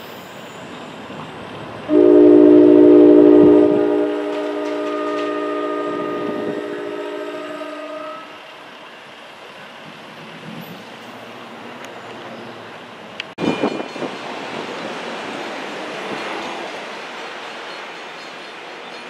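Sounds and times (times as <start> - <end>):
faint train rumble: 0.0 - 19.0
train horn chord: 1.9 - 8.5.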